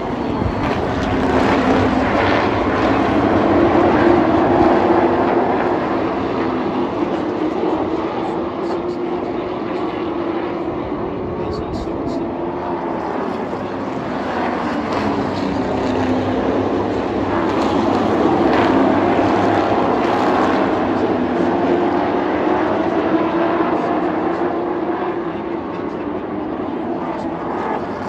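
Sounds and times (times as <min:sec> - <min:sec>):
racing truck engines passing: 0:00.0 - 0:08.6.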